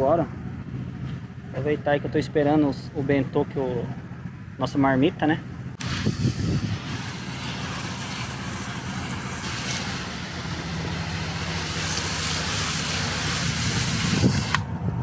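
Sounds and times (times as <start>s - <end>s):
hose spraying water on wheel: 5.8s - 14.6s.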